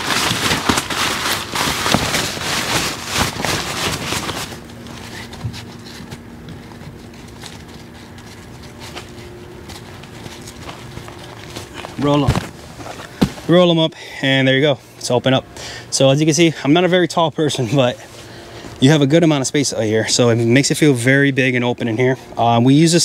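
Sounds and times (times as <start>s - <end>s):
tent fabric crinkling and rustling: 0.0s - 14.4s.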